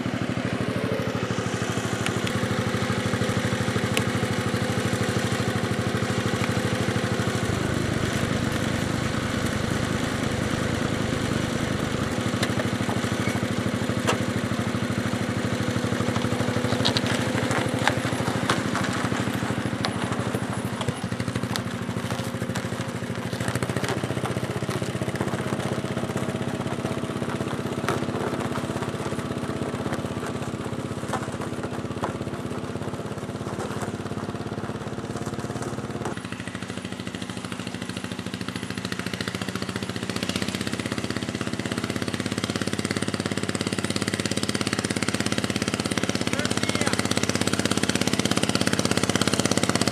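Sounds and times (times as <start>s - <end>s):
tractor engine running: 0.0s - 49.9s.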